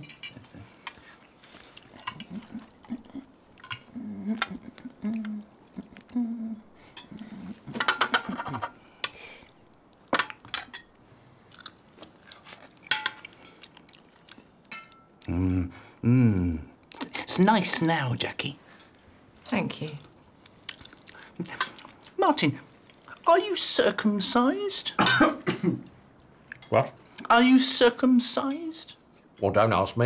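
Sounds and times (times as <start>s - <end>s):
chewing: 0.8s - 7.8s, 8.4s - 10.9s, 11.5s - 15.3s, 18.8s - 23.3s
cutlery clinking on plates: 6.9s - 9.2s, 12.9s - 13.6s.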